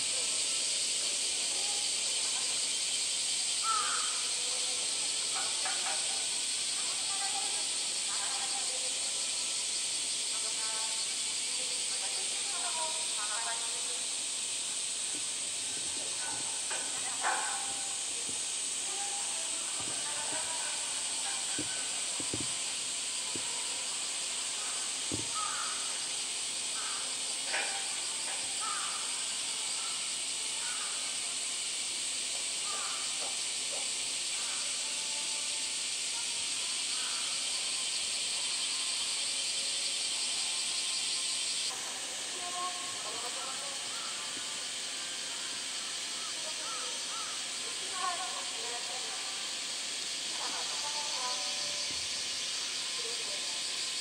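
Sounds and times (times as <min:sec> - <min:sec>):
cicada chorus drone: 0:00.0 - 0:54.0
soft knocks: 0:21.5 - 0:22.6.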